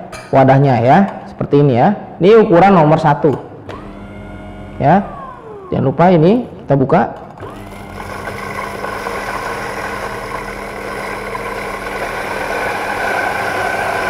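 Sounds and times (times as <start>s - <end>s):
electric coffee grinder humming: 3.7s - 6.7s, 7.4s - 14.0s.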